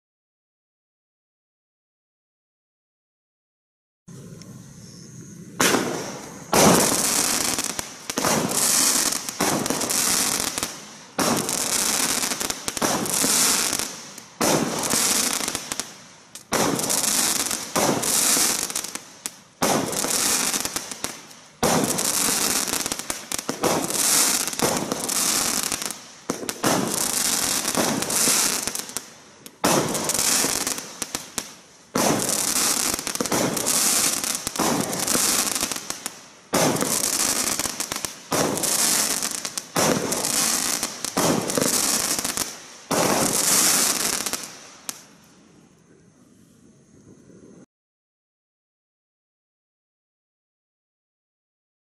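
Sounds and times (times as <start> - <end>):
firework crackling: 4.1 - 45.4
firework shots firing: 5.5 - 45.1.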